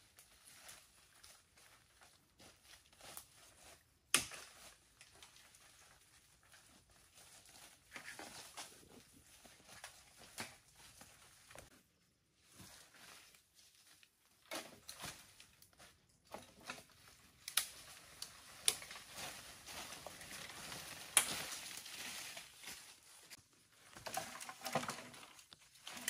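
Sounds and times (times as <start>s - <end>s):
brushing through undergrowth: 16.8s - 23.4s
footsteps crunching dry leaves: 18.2s - 23.4s.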